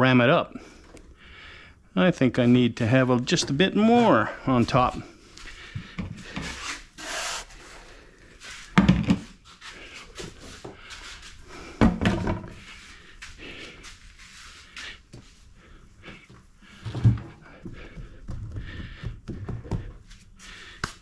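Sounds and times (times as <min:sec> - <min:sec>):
heavy thumps: 0:11.7 - 0:12.7.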